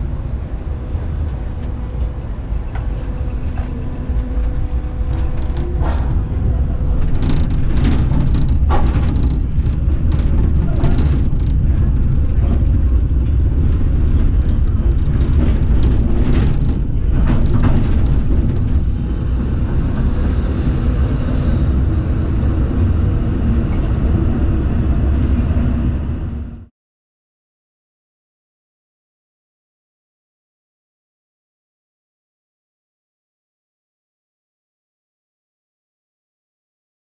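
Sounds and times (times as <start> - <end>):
tram wheels rumbling on rails: 0.0 - 26.7
wheels clicking over track joints: 2.7 - 19.5.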